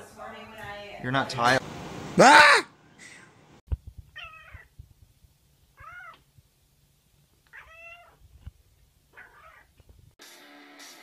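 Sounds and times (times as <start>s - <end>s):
cat meowing: 4.2s - 4.7s, 5.8s - 6.2s, 7.5s - 8.2s, 9.1s - 9.7s.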